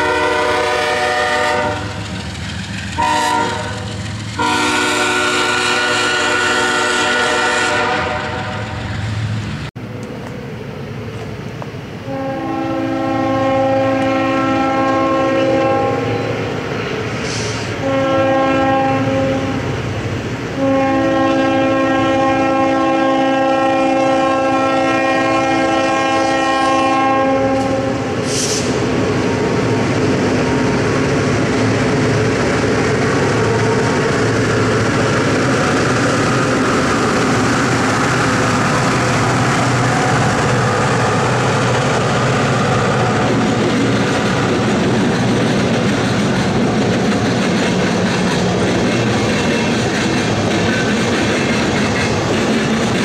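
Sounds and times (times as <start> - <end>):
train air horn blasts: 0.0 - 2.0, 3.0 - 8.8, 12.1 - 16.4, 17.2 - 19.7, 20.6 - 28.8
locomotive and wheels rumbling on rails: 0.0 - 53.0.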